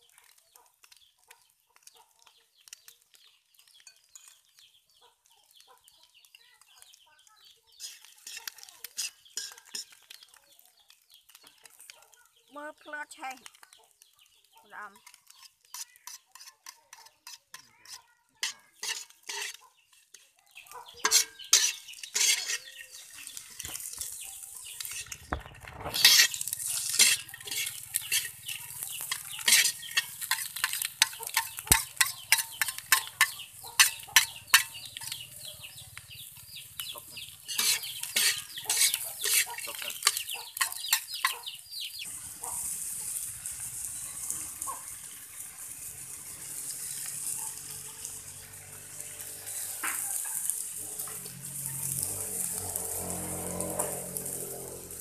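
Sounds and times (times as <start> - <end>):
frying sizzle: 0.0 - 55.0
metal spatula scraping a wok: 7.7 - 10.3, 15.0 - 55.0.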